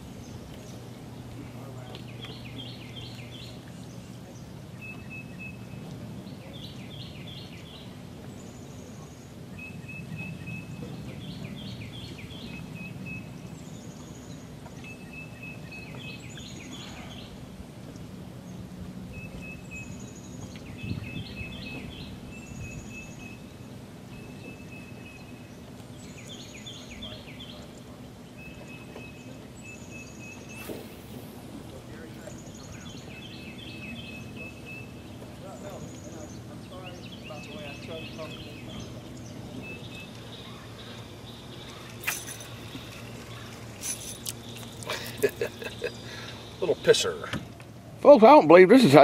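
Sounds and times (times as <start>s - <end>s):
songbirds chirping: 0.0s - 49.0s
whistled bird notes: 4.3s - 17.4s, 19.1s - 31.3s, 32.0s - 47.3s
low hum: 27.6s - 48.0s.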